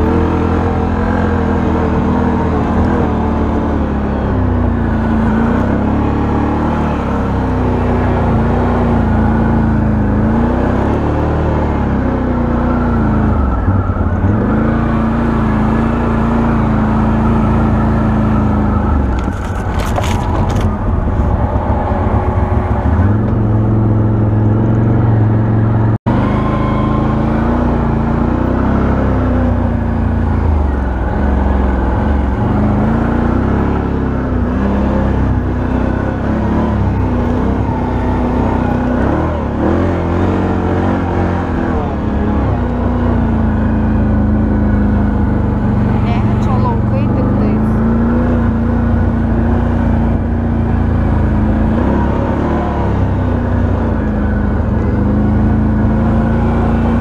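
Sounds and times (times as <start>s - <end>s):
quad engine running: 0.0s - 57.0s.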